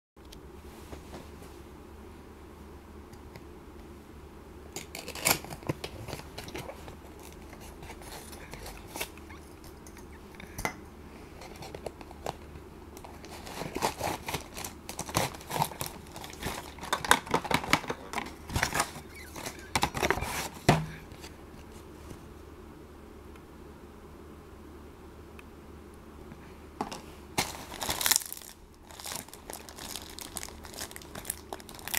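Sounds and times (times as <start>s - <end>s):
box handling clicks and rustles: 4.8s - 9.8s, 11.4s - 21.4s, 26.8s - 31.9s
cardboard and plastic crinkling: 11.4s - 21.4s, 26.8s - 31.9s.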